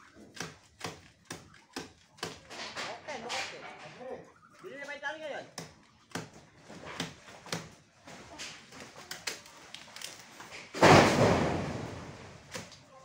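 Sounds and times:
heavy crash: 0:10.8 - 0:12.4.

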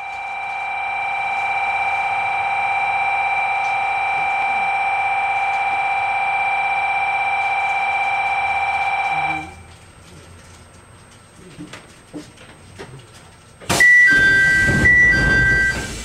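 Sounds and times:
electric departure bell ringing: 0:13.8 - 0:16.0.

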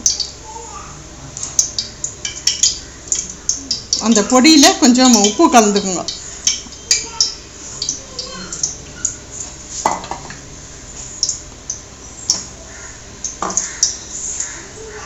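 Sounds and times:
metal kitchen vessels clinking: 0:01.5 - 0:09.2.

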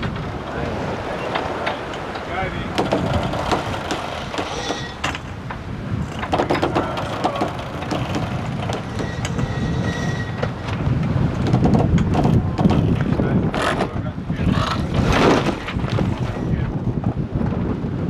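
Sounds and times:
rush of wind and water: 0:00.0 - 0:18.0
high creaks: 0:01.2 - 0:16.6
rigging clicks and knocks: 0:01.3 - 0:09.5, 0:10.4 - 0:14.0.

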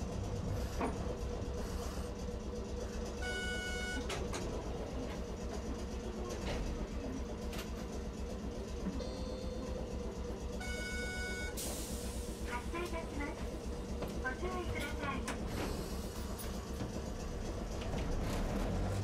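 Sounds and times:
streetcar rumbling: 0:00.0 - 0:19.0.

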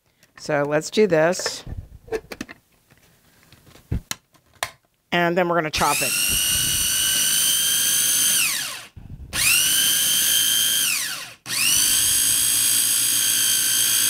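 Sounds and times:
blender motor whining in pulses: 0:05.8 - 0:14.0.

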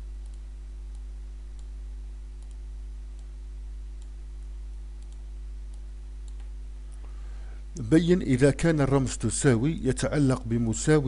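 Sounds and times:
electrical mains hum: 0:00.0 - 0:11.0
faint clicks: 0:00.2 - 0:01.8, 0:02.4 - 0:03.4, 0:05.0 - 0:07.2.

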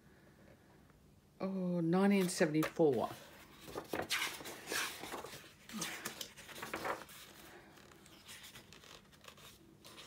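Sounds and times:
book pages turning: 0:02.1 - 0:10.0.

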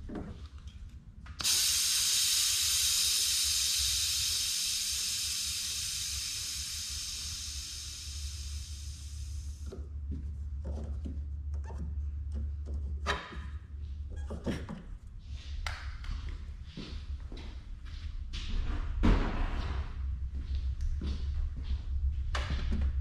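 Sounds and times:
compressed air hissing: 0:01.4 - 0:09.7.

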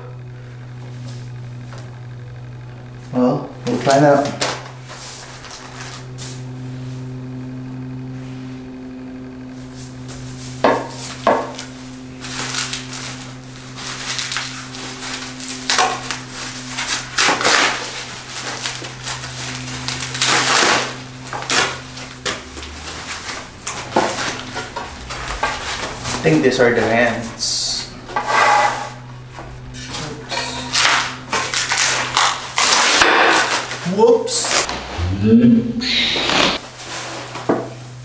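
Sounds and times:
steady low hum: 0:00.0 - 0:38.0
plastic wrapping crinkling and tearing: 0:11.1 - 0:26.2, 0:30.6 - 0:34.7.

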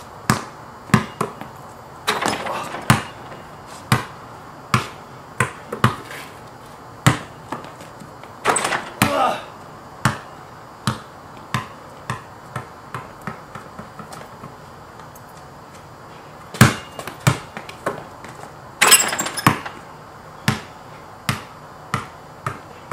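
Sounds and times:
basketball bouncing on wet ground: 0:00.2 - 0:06.1, 0:07.0 - 0:09.4, 0:10.0 - 0:15.1, 0:16.5 - 0:18.4, 0:19.1 - 0:19.9, 0:20.5 - 0:22.9
rattling clatter: 0:18.8 - 0:19.8.

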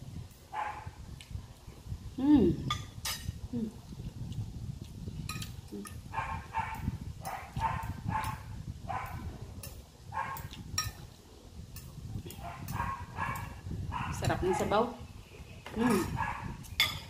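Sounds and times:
cutlery clinking in glass dish: 0:10.8 - 0:11.1, 0:16.8 - 0:17.0
dog yapping: 0:12.4 - 0:14.2.

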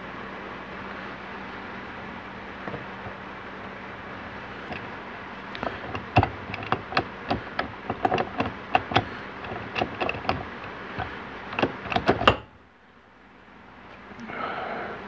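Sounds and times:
metal gear parts clicking: 0:05.6 - 0:12.5.

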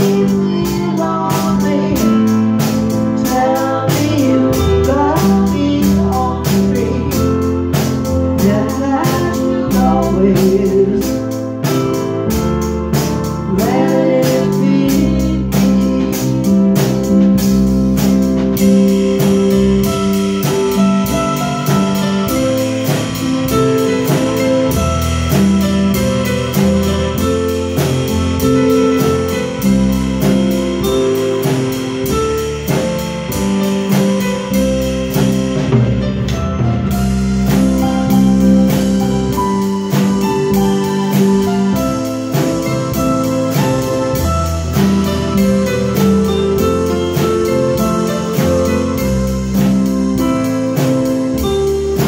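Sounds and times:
person singing: 0:00.0 - 0:07.7, 0:08.3 - 0:11.4, 0:13.4 - 0:17.2
cymbals keeping a beat: 0:00.0 - 0:52.0
live band playing slow song: 0:00.0 - 0:52.0.

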